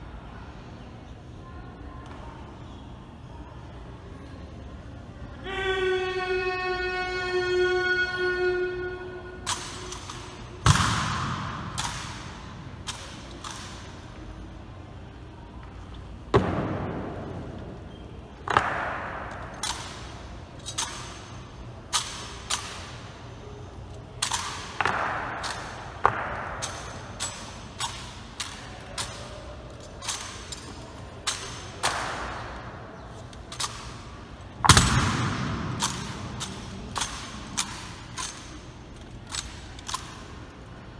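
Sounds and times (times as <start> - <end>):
rifles clacking and thudding: 9.4 - 14.0, 18.5 - 21.2, 21.9 - 23.1, 24.2 - 40.6.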